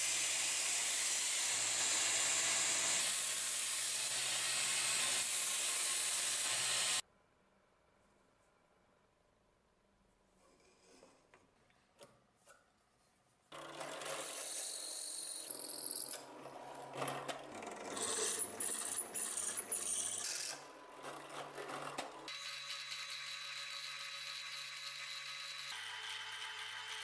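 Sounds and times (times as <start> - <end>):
drill press cutting steel: 13.6 - 27.0.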